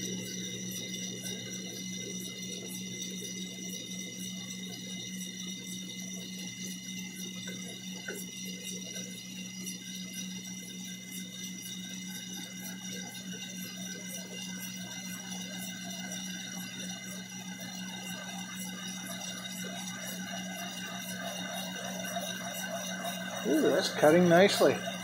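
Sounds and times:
metal lathe humming: 11.5s - 25.0s
fast regular ticking: 14.3s - 25.0s.

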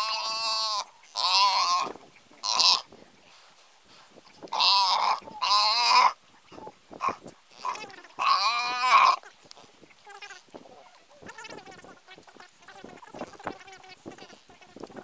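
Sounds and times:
buffalo bawling: 7.0s - 9.2s.

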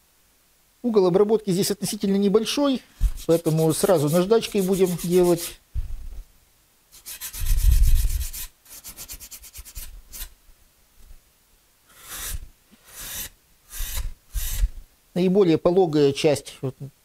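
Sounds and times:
sandpaper rubbing on foam: 3.0s - 5.6s, 7.0s - 10.3s, 11.9s - 14.7s.

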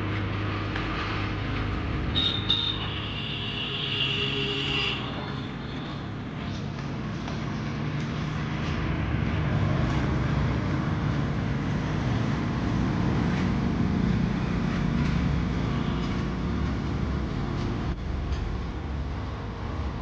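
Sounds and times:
vehicle engine running: 6.3s - 20.0s.

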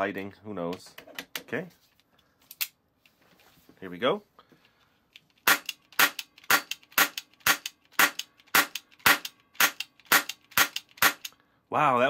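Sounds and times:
cap gun cracks: 5.4s - 11.3s.

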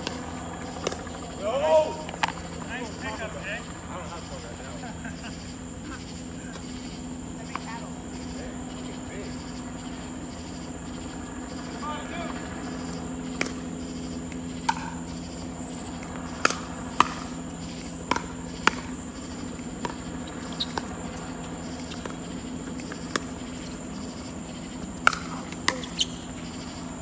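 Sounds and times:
steady high whine: 0.0s - 27.0s
steady low hum: 0.0s - 27.0s
ball bouncing on hard court: 14.6s - 15.0s, 15.8s - 24.1s, 24.9s - 26.4s
paddles striking plastic ball: 25.0s - 26.0s.

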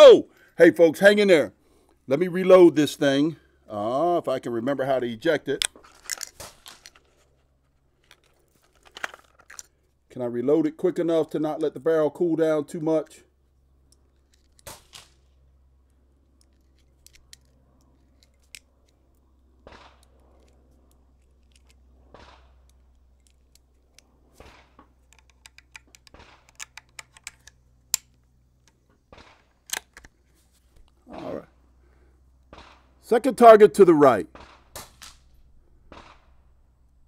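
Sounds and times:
soft handling noises: 5.5s - 10.0s, 13.1s - 32.5s
cartridges clicking into magazine: 16.3s - 19.0s, 19.7s - 24.1s, 25.0s - 30.2s.

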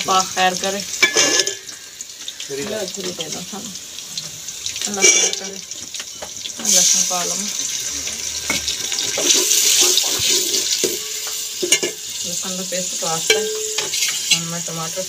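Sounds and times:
onions sizzling in oil: 0.0s - 15.0s
metal spoon knocking a pot: 5.0s - 5.5s, 13.3s - 14.0s.

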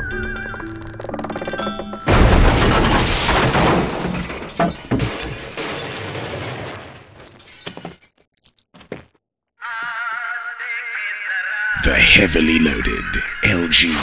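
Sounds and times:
debris falling: 0.5s - 8.6s
floor breaking and caving in: 0.6s - 9.0s.

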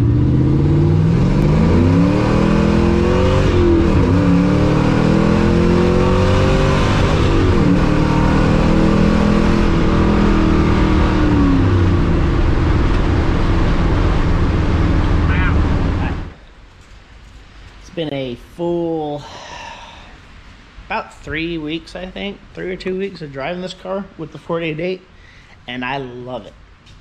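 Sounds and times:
car engine accelerating through gears: 0.0s - 16.3s.

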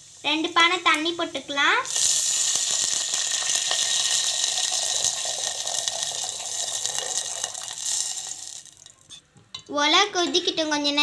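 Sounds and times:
water pouring into a pot: 1.9s - 8.9s.

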